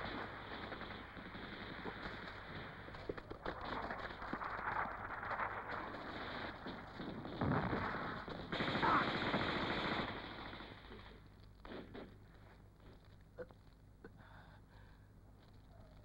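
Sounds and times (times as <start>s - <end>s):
automatic gunfire: 5.8s - 12.1s.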